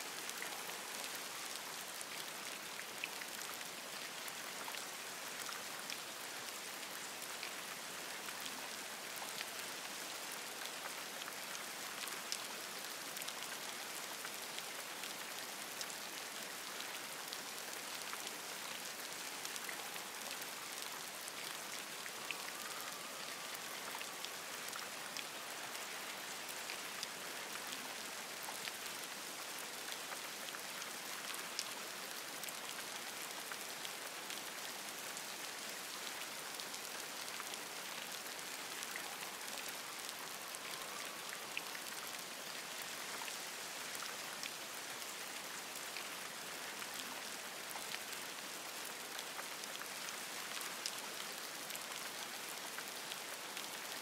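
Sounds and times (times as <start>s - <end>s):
rain falling on leaves: 0.0s - 54.0s.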